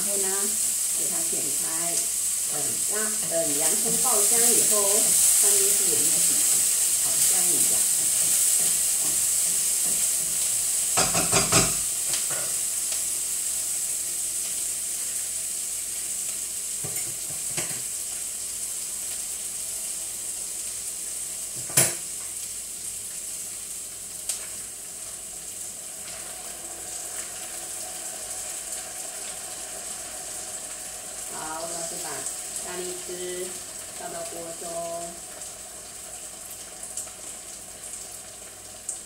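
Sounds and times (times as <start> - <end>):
onion sizzling in hot oil: 0.0 - 39.0.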